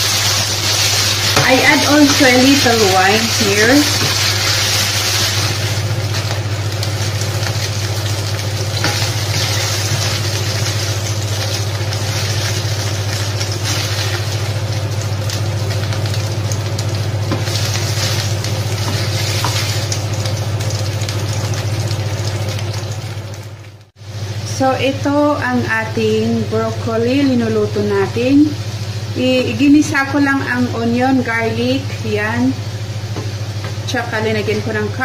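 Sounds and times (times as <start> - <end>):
meat sizzling in a frying pan: 0.0 - 23.9.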